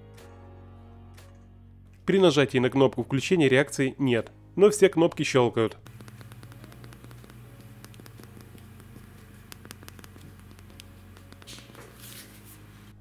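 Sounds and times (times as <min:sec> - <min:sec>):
phone buttons clicking: 0:05.8 - 0:11.8
low steady hum: 0:05.8 - 0:13.0.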